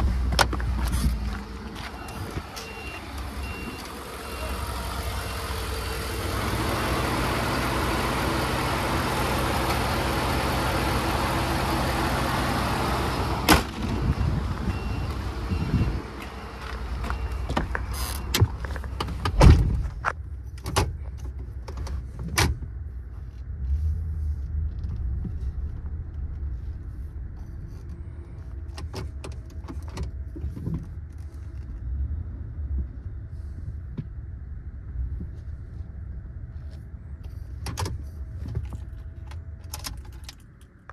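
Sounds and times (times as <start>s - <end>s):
truck engine idling: 0.0s - 19.5s.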